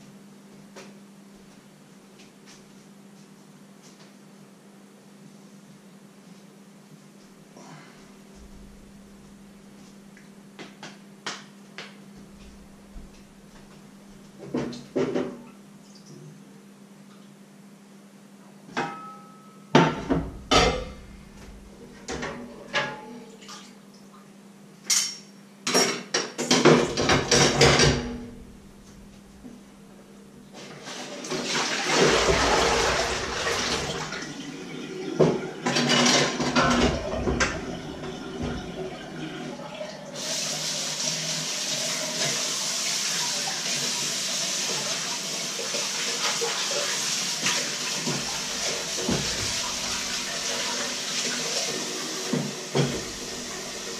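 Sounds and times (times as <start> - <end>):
pots and pans clattering: 19.8 - 21.0, 24.9 - 28.3, 35.0 - 39.0
kitchen tap running: 31.2 - 53.9.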